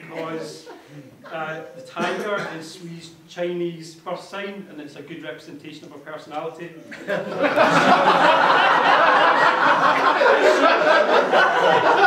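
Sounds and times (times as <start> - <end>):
crowd laughing: 0.0 - 1.5, 6.8 - 12.0.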